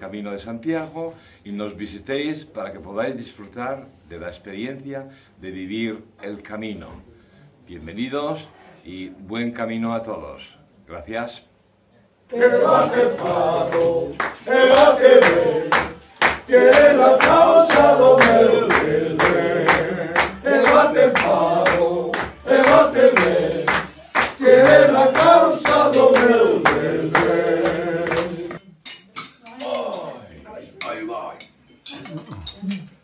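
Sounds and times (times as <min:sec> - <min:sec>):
group of people singing: 0:12.3 - 0:28.6
people clapping along: 0:12.3 - 0:28.6.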